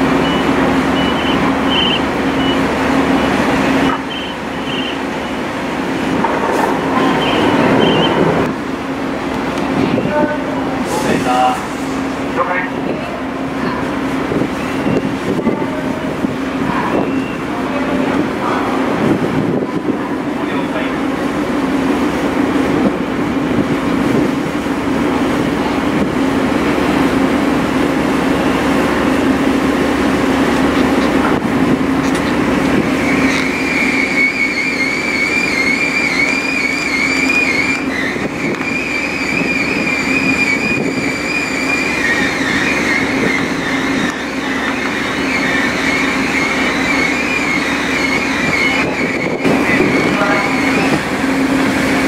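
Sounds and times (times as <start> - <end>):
high wavering whine: 0.0 - 10.6, 27.3 - 52.0
ferry engines humming: 0.0 - 52.0.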